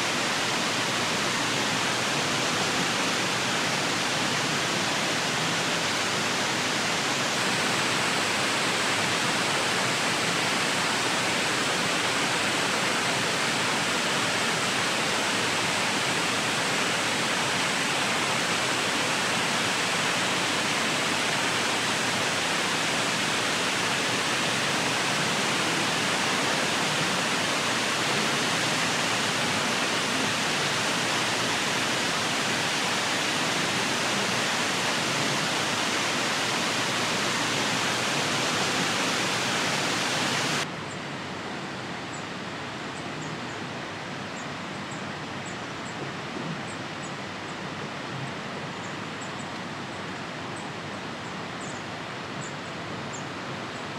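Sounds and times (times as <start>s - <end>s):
waterfall rushing: 0.0s - 40.7s.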